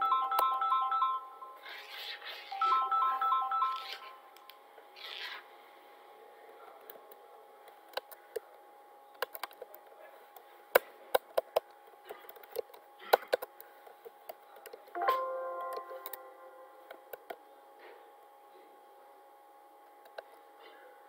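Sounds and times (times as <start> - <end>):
faint steady hum: 0.0 - 21.0
computer keyboard keystrokes: 9.2 - 9.7.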